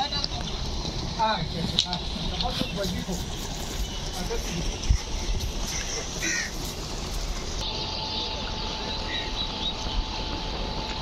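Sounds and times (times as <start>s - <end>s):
steady rushing noise: 0.0s - 11.0s
crows cawing: 5.0s - 7.1s.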